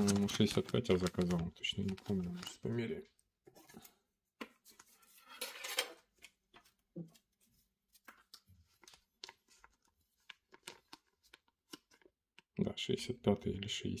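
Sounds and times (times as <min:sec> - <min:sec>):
plastic bag crinkling: 0:00.0 - 0:02.7.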